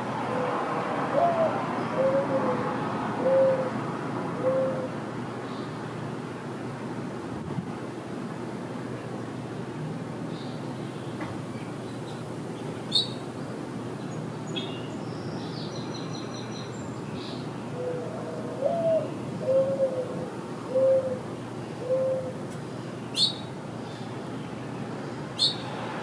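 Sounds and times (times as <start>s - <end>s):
dove cooing: 0.2s - 3.8s, 4.4s - 5.0s, 17.7s - 22.4s
songbirds chirping and trilling: 10.2s - 26.0s.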